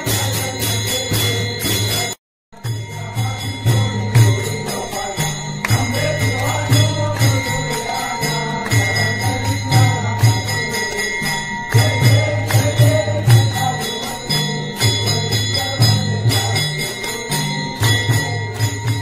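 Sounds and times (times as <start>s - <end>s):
bells ringing: 0.0s - 19.0s
clapped beat: 2.6s - 2.9s, 5.6s - 7.6s, 8.6s - 11.1s, 11.7s - 13.6s
devotional music: 2.6s - 19.0s.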